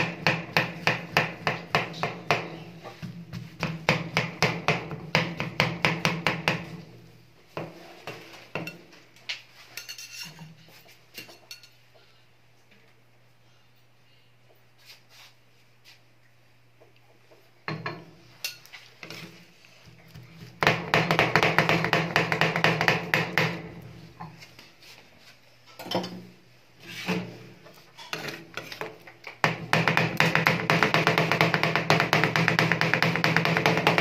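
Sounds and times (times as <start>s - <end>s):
metal spatulas chopping on steel: 29.4s - 34.0s.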